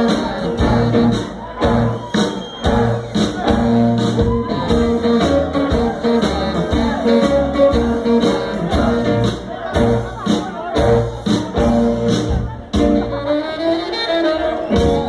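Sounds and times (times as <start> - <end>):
steady drum beat: 0.0 - 13.4, 14.7 - 15.0.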